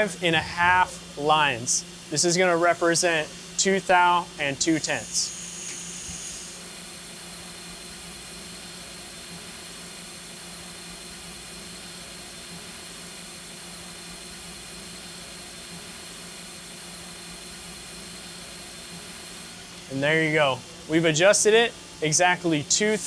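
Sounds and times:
low hum: 0:00.0 - 0:02.3
faint high whine: 0:00.0 - 0:06.6
steady hiss: 0:19.2 - 0:23.0.

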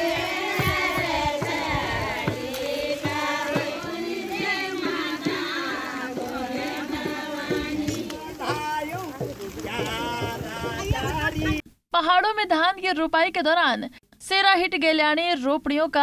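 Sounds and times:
hand drum strokes: 0:00.0 - 0:11.6
voices singing a folk song: 0:00.0 - 0:11.6.

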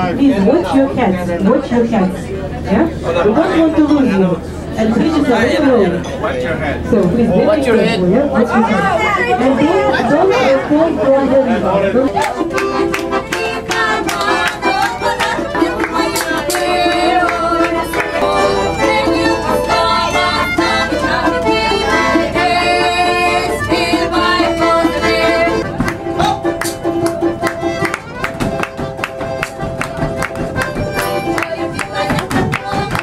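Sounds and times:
fast folk tune on strings: 0:07.5 - 0:33.0
people clapping along: 0:12.1 - 0:22.6, 0:25.7 - 0:33.0.

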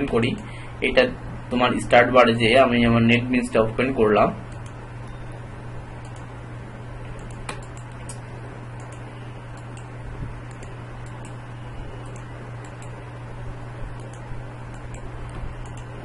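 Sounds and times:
low hum: 0:00.0 - 0:16.0
computer mouse clicks: 0:06.0 - 0:06.3, 0:07.2 - 0:08.2, 0:08.8 - 0:09.9, 0:10.5 - 0:11.4, 0:12.0 - 0:13.0, 0:14.0 - 0:15.9.

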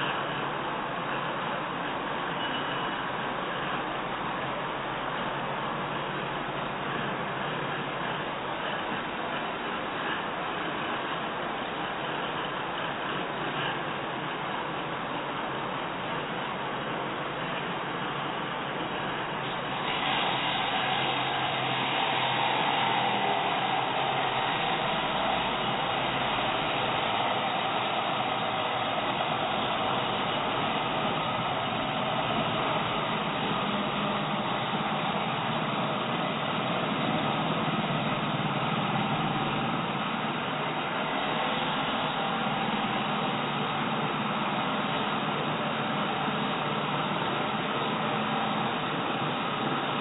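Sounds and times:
angle grinder cutting steel rod: 0:19.5 - 0:33.8.

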